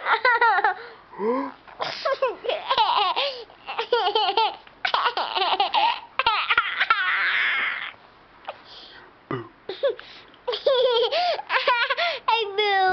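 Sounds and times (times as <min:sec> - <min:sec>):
baby laughing: 0:01.8 - 0:08.0, 0:09.7 - 0:12.2
baby squealing: 0:06.2 - 0:08.0.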